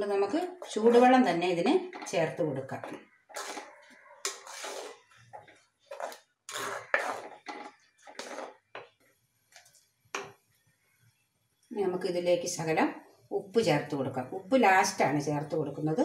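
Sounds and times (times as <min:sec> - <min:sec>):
wooden spatula scraping pot: 0:00.0 - 0:09.1.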